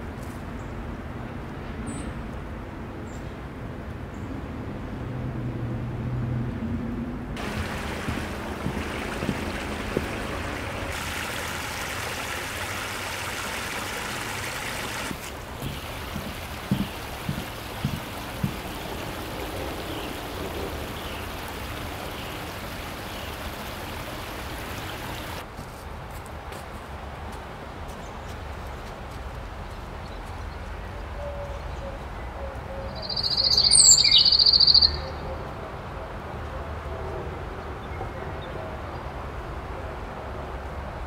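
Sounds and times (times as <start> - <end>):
footsteps on wooden footbridge: 7.4 - 11.5, 15.0 - 19.8
creek water rushing: 7.4 - 25.4.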